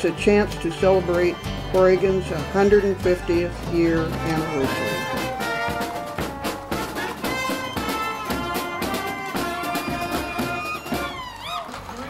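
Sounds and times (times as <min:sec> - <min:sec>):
bass drum beats: 0:00.0 - 0:11.2
brass band playing: 0:00.0 - 0:11.3.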